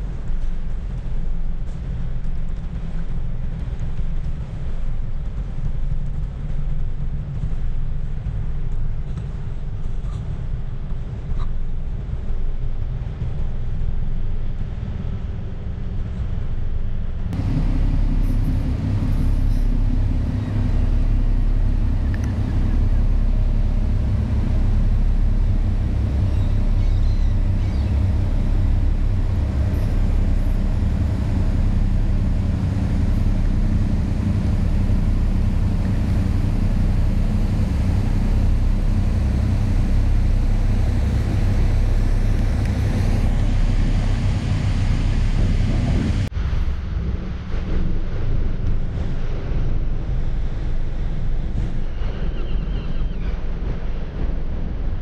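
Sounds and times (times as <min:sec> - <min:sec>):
wind on microphone: 0:00.0 - 0:55.0
ship diesel engines droning: 0:15.8 - 0:46.3.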